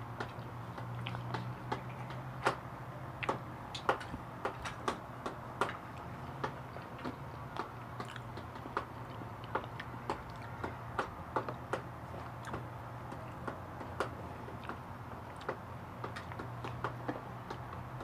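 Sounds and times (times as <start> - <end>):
steady low hum: 0.0 - 18.0
wet chewing mouth smacks: 8.0 - 8.3.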